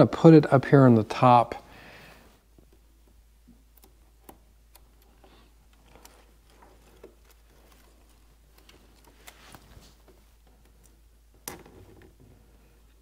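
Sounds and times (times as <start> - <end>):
label peeling clicks and crinkles: 3.5 - 11.6.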